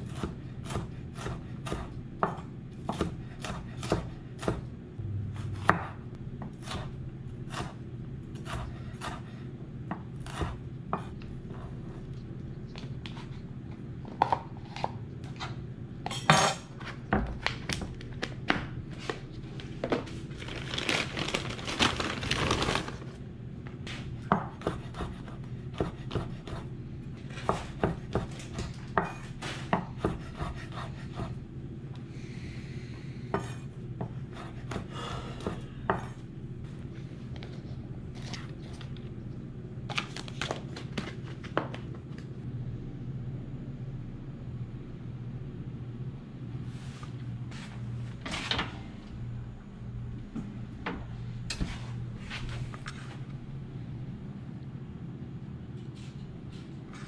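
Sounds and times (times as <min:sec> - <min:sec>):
low hum: 0:04.0 - 0:27.5, 0:41.2 - 0:57.0
scrape: 0:46.6 - 0:48.5.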